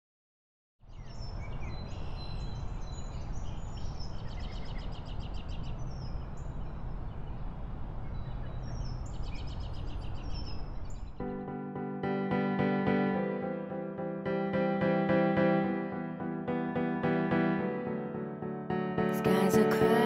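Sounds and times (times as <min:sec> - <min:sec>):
small birds chirping: 0:00.8 - 0:11.4.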